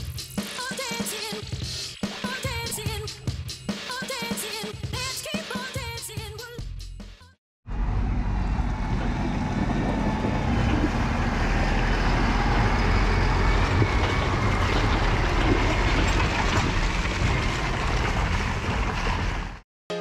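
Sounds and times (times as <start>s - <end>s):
tractor diesel engine passing: 7.7s - 19.6s.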